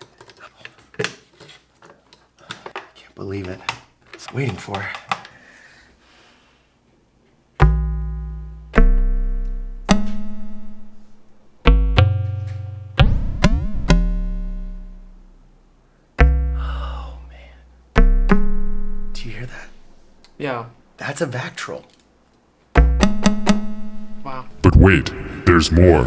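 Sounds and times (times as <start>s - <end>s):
deep plucky synthesizer notes: 7.6s - 11.0s, 11.6s - 16.8s, 17.6s - 19.2s, 22.8s - 25.2s.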